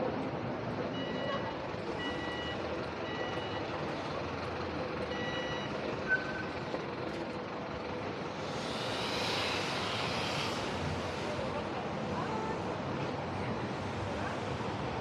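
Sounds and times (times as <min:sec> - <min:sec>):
city street traffic: 0:00.0 - 0:15.0
hiss: 0:08.3 - 0:11.9.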